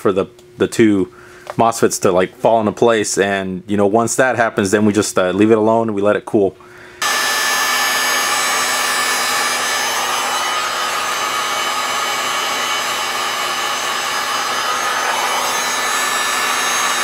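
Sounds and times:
heat gun blowing air: 7.0 - 17.0.

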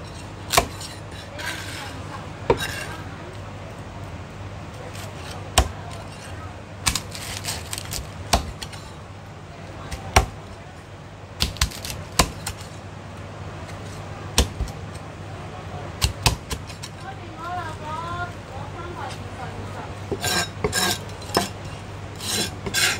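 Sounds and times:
cleaver chopping on wooden block: 5.6 - 5.8, 8.3 - 8.7, 11.4 - 12.6, 14.4 - 14.7, 16.0 - 16.7, 20.1 - 21.6, 22.2 - 22.9.

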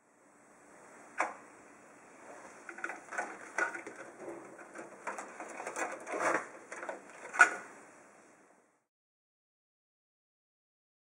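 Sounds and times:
cable rustling: 2.2 - 7.7.

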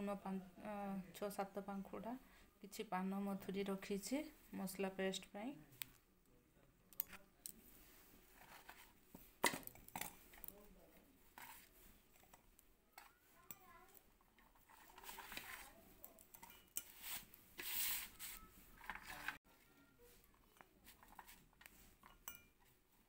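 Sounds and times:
rustling handling noise: 7.1 - 23.0.

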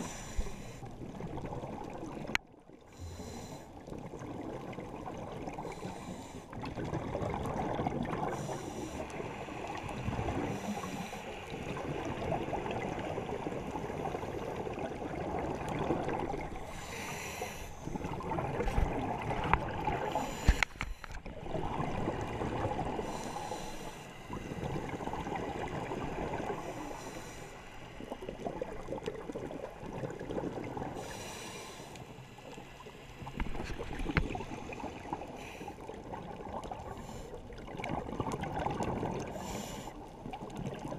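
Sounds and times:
diver inhaling through regulator: 0.0 - 0.9, 2.9 - 3.8, 5.6 - 6.6, 8.2 - 11.7, 16.6 - 18.1, 20.0 - 21.2, 23.0 - 25.1, 26.4 - 28.5, 30.9 - 32.7, 39.2 - 40.0
exhaled air bubbling: 0.0 - 31.7, 32.8 - 40.9.

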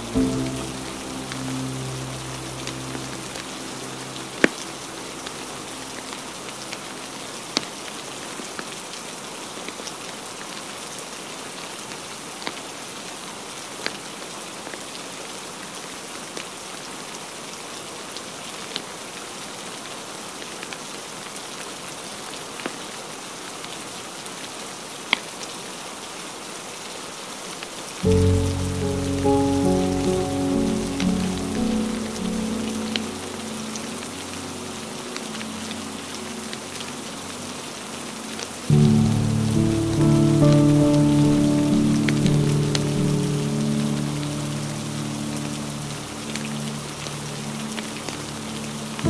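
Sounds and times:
rain hiss: 0.0 - 49.0.

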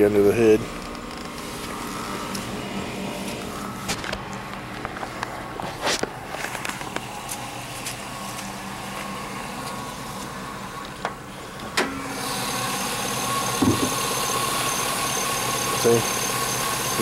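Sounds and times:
car engine idling: 0.0 - 17.0
car hood clicks and knocks: 13.6 - 13.9.

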